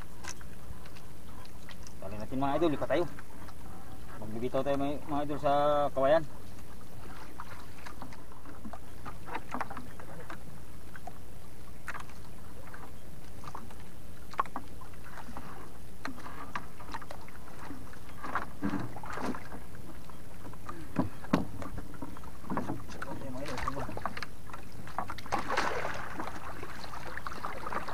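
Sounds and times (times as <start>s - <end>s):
water splashing around boat: 0.0s - 27.9s
knocks against boat hull: 20.9s - 21.8s.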